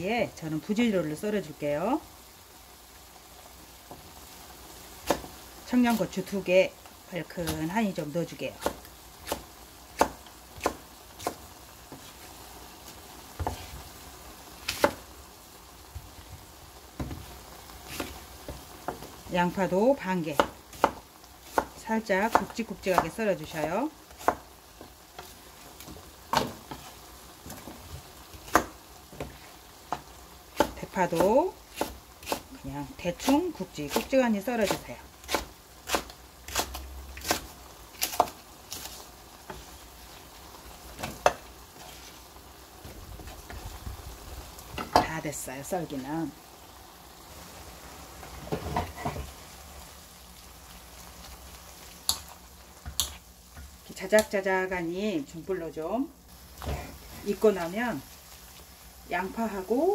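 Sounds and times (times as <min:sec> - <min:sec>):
pan simmering sizzle: 0:00.0 - 0:59.9
spatula stirring and scraping: 0:11.1 - 0:14.1, 0:20.3 - 0:43.8.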